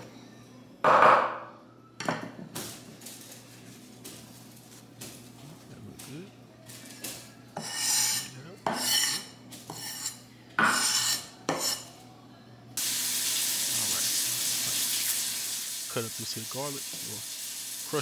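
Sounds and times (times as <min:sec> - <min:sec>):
cleaver scraping cutting board: 0:07.6 - 0:11.8.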